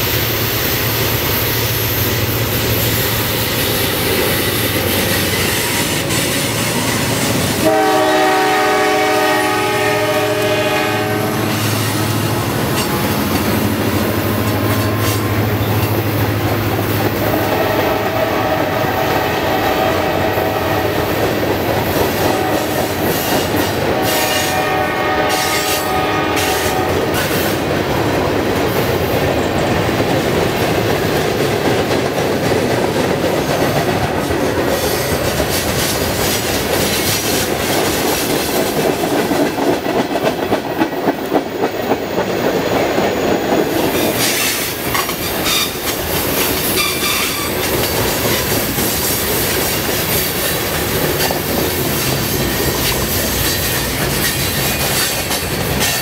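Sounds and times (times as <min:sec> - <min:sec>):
steel wheels rumbling on rail: 0:00.0 - 0:56.0
clickety-clack over rail joints: 0:01.0 - 0:56.0
wheel squeal: 0:46.6 - 0:47.8.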